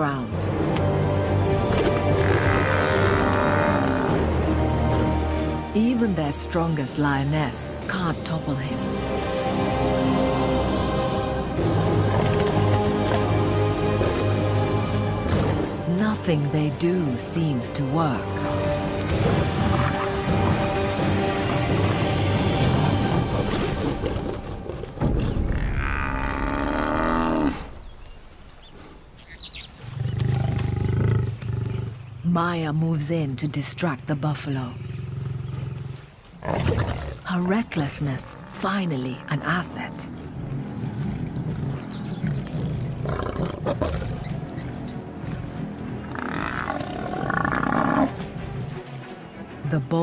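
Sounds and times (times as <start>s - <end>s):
lions growling: 1.7s - 5.0s, 29.8s - 32.0s, 34.7s - 37.4s, 38.2s - 48.4s
lion snarling: 34.7s - 37.3s, 41.2s - 44.7s, 46.0s - 48.2s
buffalo bellowing in distress: 46.0s - 48.2s.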